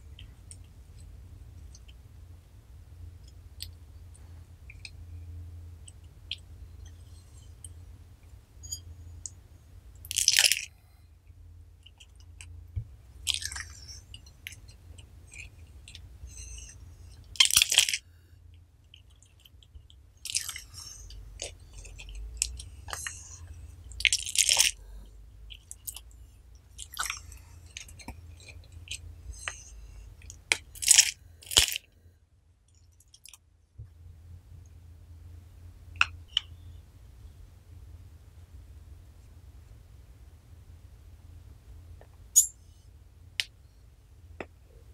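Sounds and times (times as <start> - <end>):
slime squishing: 11.8 - 18.0, 18.9 - 31.9.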